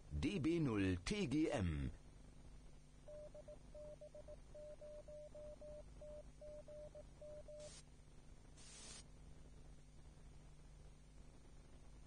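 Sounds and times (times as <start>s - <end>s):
faint low hum: 0.0s - 12.0s
burst of hiss: 8.6s - 9.1s.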